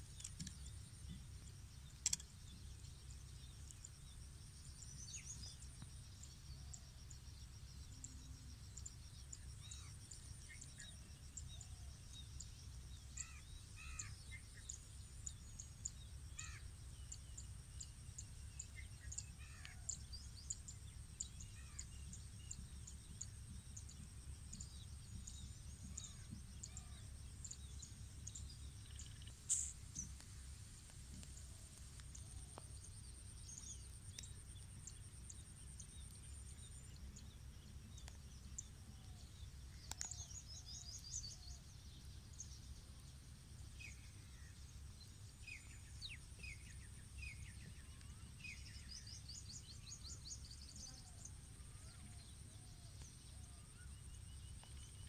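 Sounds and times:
small chirps: 0.0 - 2.6, 21.4 - 37.3
low steady rumble: 0.0 - 55.0.

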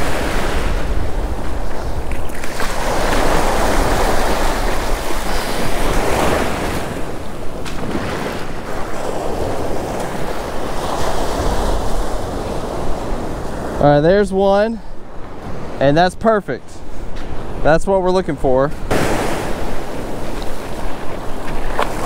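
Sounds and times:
wind buffeting microphone: 0.0 - 15.8, 18.5 - 22.0
shallow surf washing: 0.0 - 22.0.

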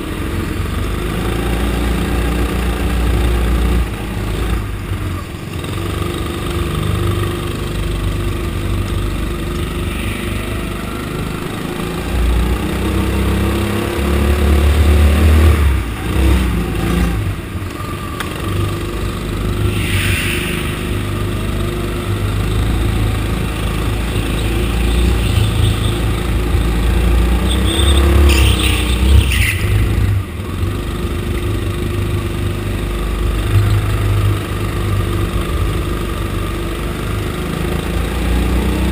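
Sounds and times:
go-kart engine revving: 0.0 - 38.9
short high squeals: 9.8 - 11.4, 19.6 - 21.3.

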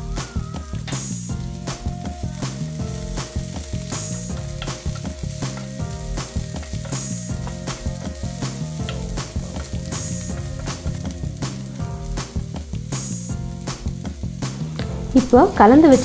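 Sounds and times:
background music with beat: 0.0 - 16.0
garlic sizzling in hot oil: 0.0 - 16.0
wooden spatula stirring: 2.3 - 11.8.

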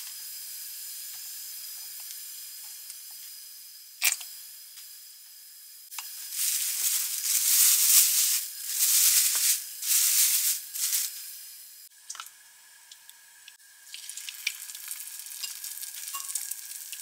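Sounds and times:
plastic bag crinkling: 6.2 - 11.2.

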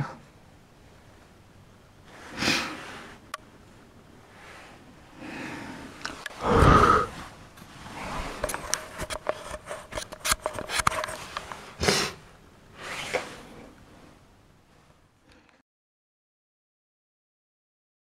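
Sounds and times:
camera handling noise: 8.4 - 11.6.

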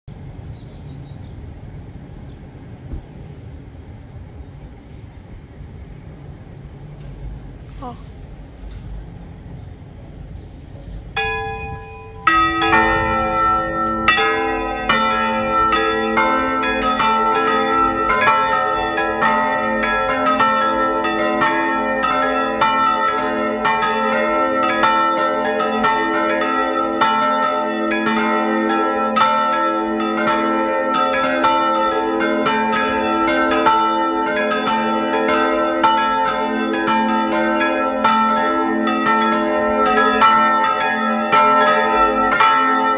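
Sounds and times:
church bells ringing in a peal: 11.1 - 42.9.

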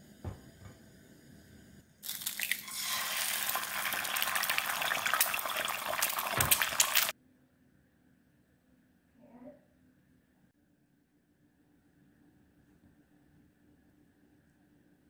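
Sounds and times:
egg sizzling in hot oil: 2.0 - 7.1.

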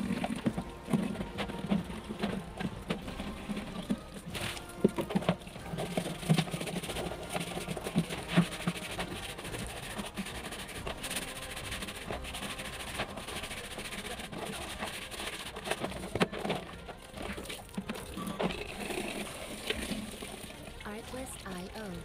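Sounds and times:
plastic scrubbed by hand: 0.0 - 21.2
water running from a tap: 18.6 - 21.9.

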